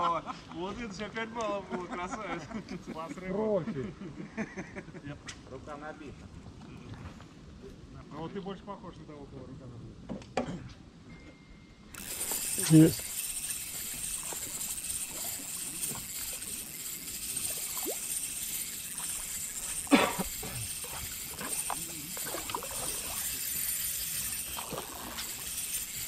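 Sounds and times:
fishing reel clicking: 11.9s - 26.0s
water trickling and lapping: 12.0s - 26.0s.

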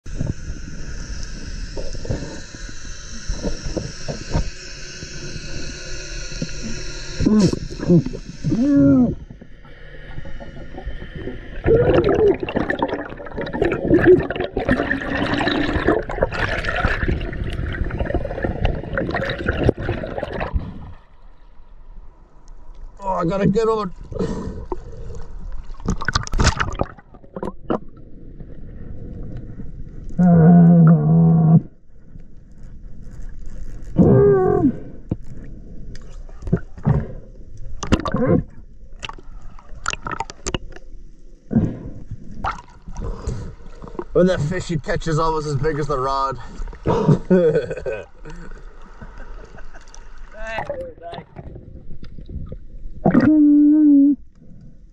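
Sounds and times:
underwater rumble: 0.0s - 54.9s
muffled voice underwater: 7.2s - 9.3s, 50.3s - 51.6s, 53.0s - 54.2s
air bubbles gurgling underwater: 10.4s - 21.0s, 24.1s - 28.4s, 37.8s - 40.8s.

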